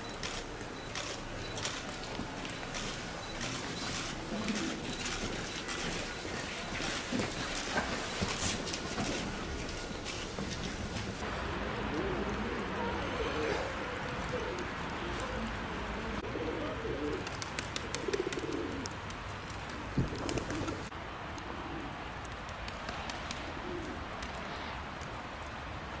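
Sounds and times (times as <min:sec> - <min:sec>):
pigeons cooing: 0:11.6 - 0:19.0.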